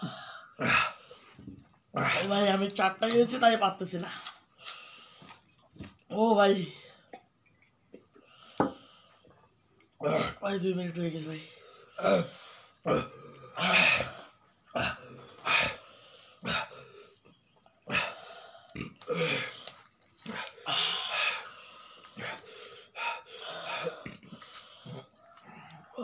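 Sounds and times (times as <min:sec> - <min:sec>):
people breathing heavily: 0:17.9 - 0:26.0.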